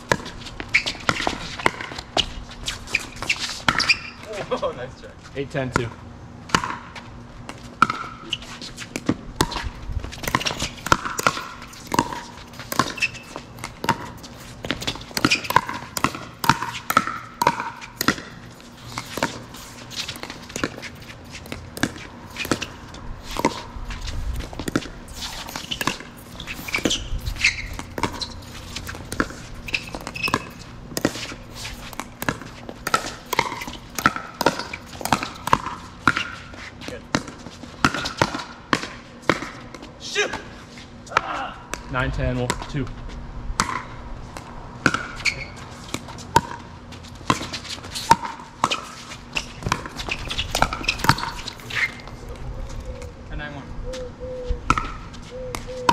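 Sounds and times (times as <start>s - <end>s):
ball bouncing on court: 0.0s - 2.3s, 3.0s - 4.4s, 5.6s - 23.7s, 24.4s - 40.4s, 41.1s - 42.8s, 43.6s - 52.2s, 54.7s - 55.9s.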